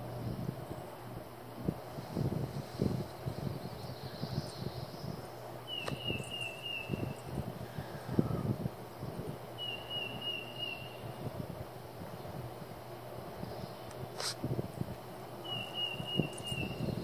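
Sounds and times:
wind rumble on microphone: 0:00.0 - 0:17.0
bird high trill: 0:09.6 - 0:11.2, 0:15.4 - 0:17.0.

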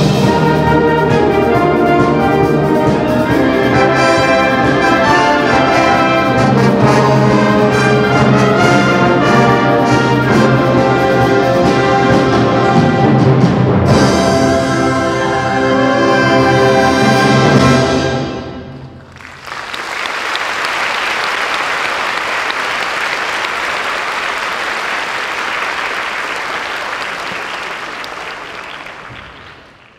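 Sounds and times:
audience applauding: 0:19.0 - 0:29.9.

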